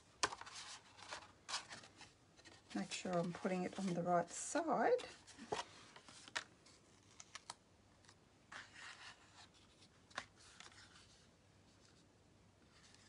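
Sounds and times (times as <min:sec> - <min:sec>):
paper rustle: 0:00.2 - 0:12.0.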